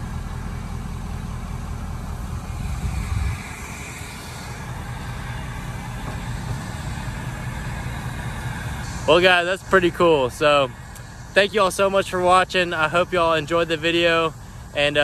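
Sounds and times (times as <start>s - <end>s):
wind buffeting microphone: 2.2s - 9.1s.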